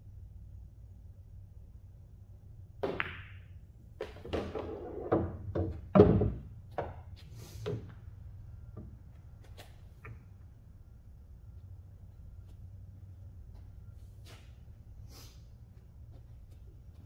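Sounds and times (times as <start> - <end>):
pool balls clicking and colliding: 2.7 - 10.6
pool cue striking ball: 2.8 - 7.0.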